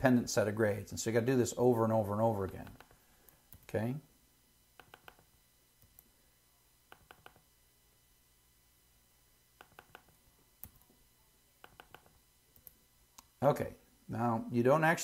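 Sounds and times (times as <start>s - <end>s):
mouse and keyboard clicks: 4.8s - 6.0s, 6.9s - 7.4s, 9.6s - 10.9s, 11.6s - 12.8s.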